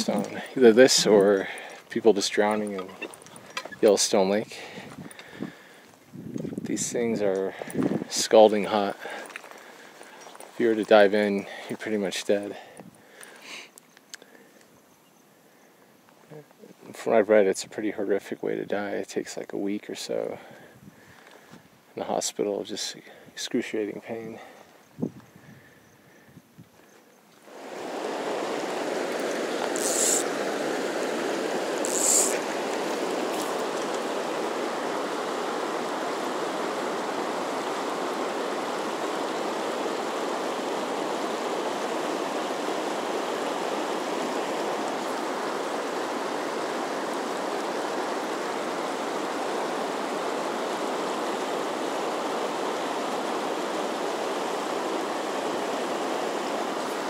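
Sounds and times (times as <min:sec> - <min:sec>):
river current flowing: 0:00.0 - 0:06.1, 0:06.7 - 0:17.3, 0:26.9 - 0:57.0
short sharp hisses: 0:29.7 - 0:30.4, 0:31.8 - 0:32.6.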